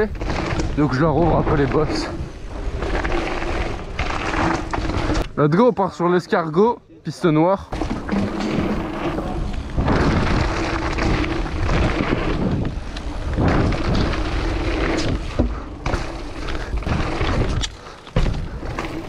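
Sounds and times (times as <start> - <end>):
tyres rumbling on dirt: 0.0 - 5.7, 7.6 - 19.0
wind on microphone: 8.0 - 15.6.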